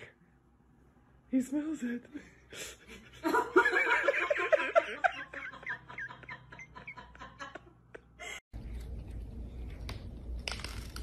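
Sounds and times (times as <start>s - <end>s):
person laughing: 2.9s - 8.4s.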